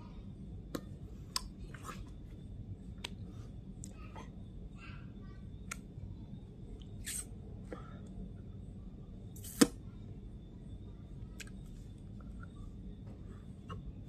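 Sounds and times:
faint high whine: 0.0 - 14.0
low room hum: 0.0 - 14.0.

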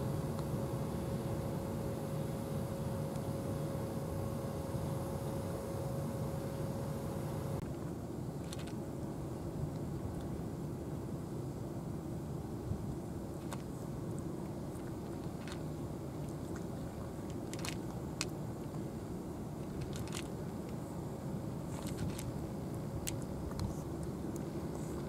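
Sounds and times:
steady low rumble: 0.0 - 25.0
cat crunching kibble: 21.7 - 22.3.

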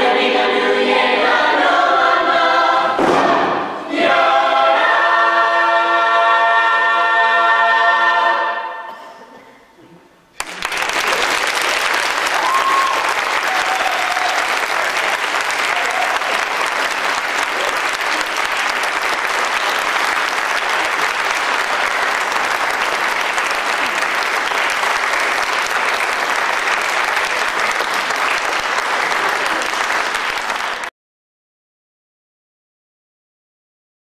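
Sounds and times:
audience applauding: 10.4 - 30.9.

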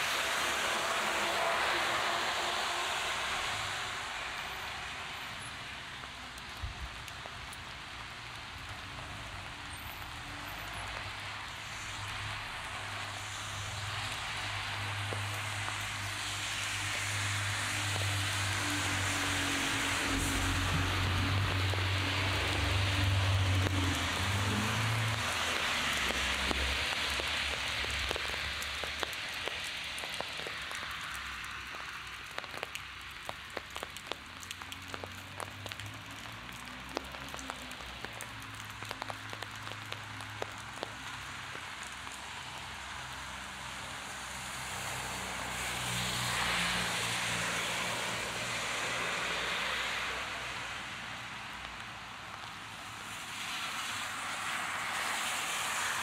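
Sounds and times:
heavy rain: 0.0 - 56.0
traffic on wet road: 0.0 - 56.0
sharp drips ticking: 16.8 - 43.8.

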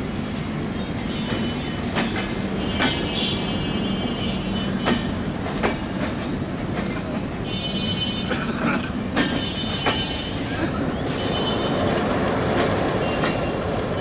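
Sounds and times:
train coaches rolling past: 0.0 - 14.0
wheels clicking over rail joints: 8.4 - 14.0.

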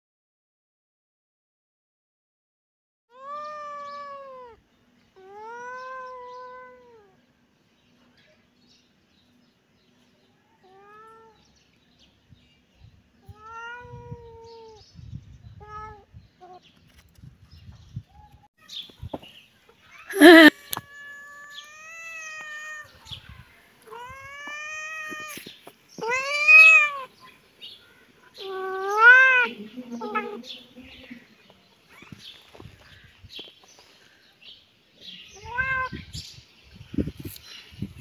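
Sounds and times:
cat meowing: 3.1 - 4.6, 5.2 - 7.1, 13.3 - 14.8, 20.2 - 25.4, 26.0 - 27.1, 28.4 - 30.4, 35.4 - 36.1.

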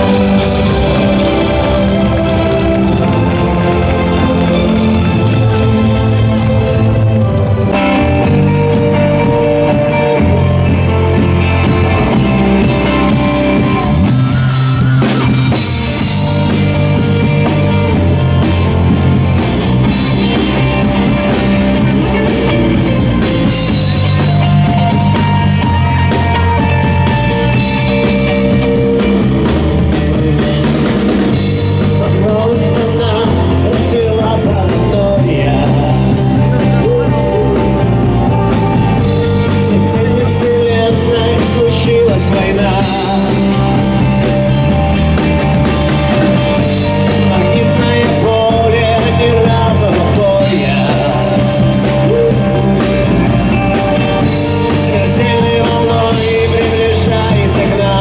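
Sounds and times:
person singing: 0.0 - 44.7, 45.7 - 58.0
rock music with drums: 0.0 - 58.0.

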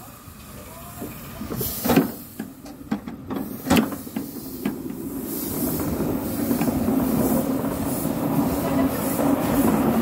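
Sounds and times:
low train rumble: 0.0 - 10.0.

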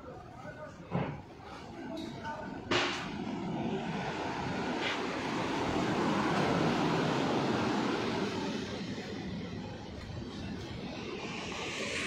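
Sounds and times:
wind buffeting microphone: 3.1 - 12.0
sea surf breaking on beach: 3.2 - 8.9.

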